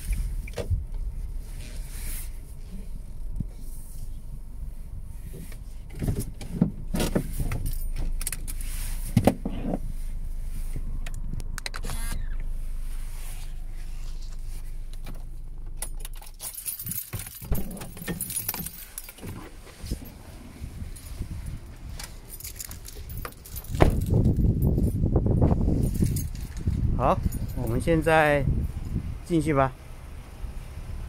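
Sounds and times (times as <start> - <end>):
car engine idling: 0.0 - 31.0
jangling and clatter: 5.9 - 8.7, 14.9 - 28.1.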